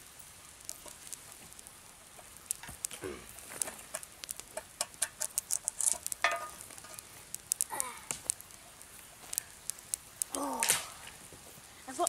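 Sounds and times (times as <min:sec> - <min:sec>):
campfire crackling and popping: 0:00.0 - 0:12.0.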